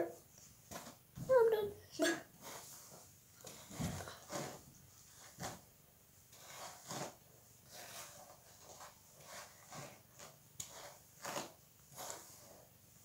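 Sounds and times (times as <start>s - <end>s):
hairbrush strokes through hair: 2.2s - 5.6s, 6.3s - 13.0s.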